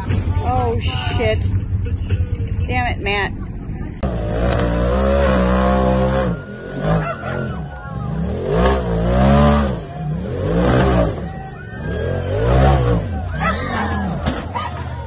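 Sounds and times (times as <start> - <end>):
engine revving hard: 4.0 - 14.2.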